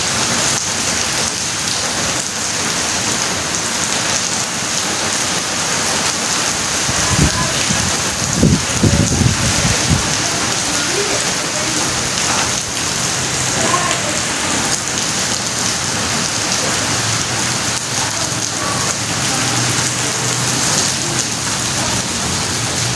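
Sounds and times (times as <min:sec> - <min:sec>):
steady rain falling: 0:00.0 - 0:22.9
low rumbling: 0:06.8 - 0:10.3.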